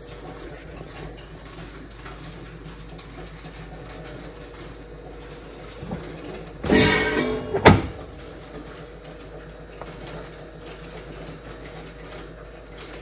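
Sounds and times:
sharp clack: 0:06.6 - 0:08.2.

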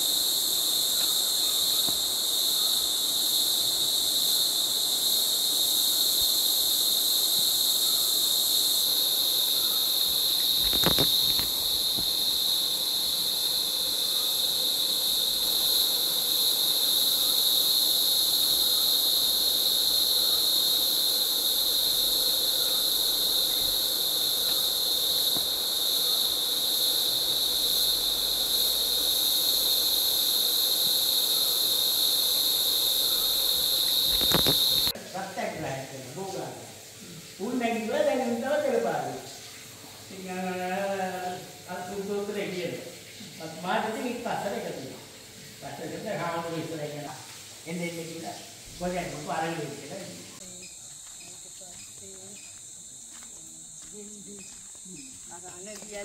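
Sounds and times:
insects buzzing shrilly: 0:00.0 - 0:56.0.

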